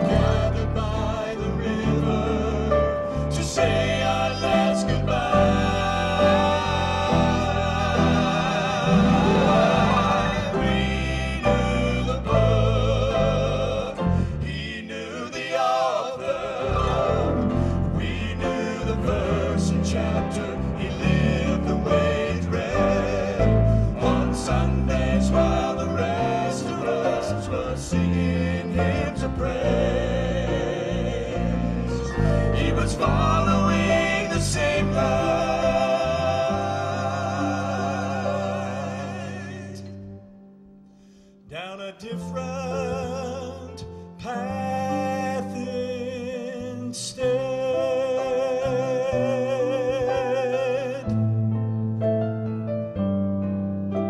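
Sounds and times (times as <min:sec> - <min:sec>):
instrumental accompaniment: 0:00.0 - 0:12.8
male vocal quartet singing: 0:00.0 - 0:40.3, 0:41.1 - 0:51.3
band accompaniment: 0:08.0 - 0:10.6.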